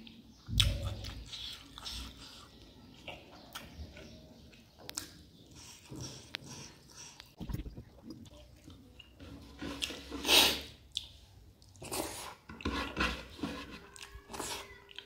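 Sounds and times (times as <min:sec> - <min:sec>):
person chewing food: 0:00.0 - 0:09.1, 0:13.8 - 0:15.0.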